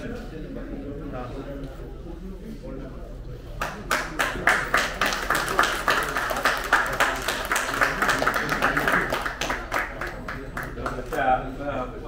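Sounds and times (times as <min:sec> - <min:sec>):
audience applauding: 0:03.6 - 0:11.2.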